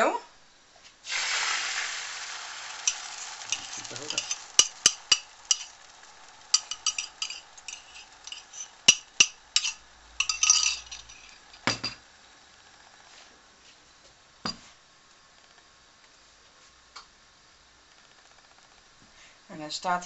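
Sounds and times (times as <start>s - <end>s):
metal spoon clinking on ceramic cup: 2.9s - 5.7s, 6.5s - 12.0s.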